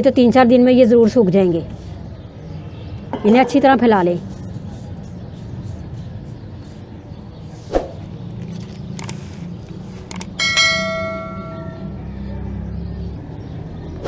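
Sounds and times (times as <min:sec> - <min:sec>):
notification bell chime: 0:10.4 - 0:12.0.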